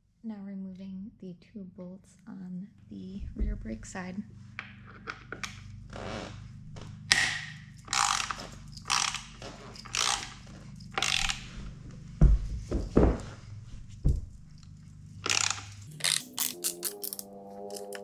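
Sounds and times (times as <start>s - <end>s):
hand ratchet clicking: 7.1s - 11.6s, 15.2s - 18.0s
dull knocks: 12.2s - 14.5s.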